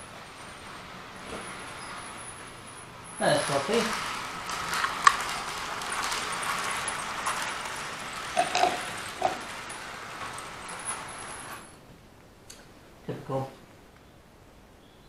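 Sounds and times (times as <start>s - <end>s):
knocks: 8.4s - 9.7s.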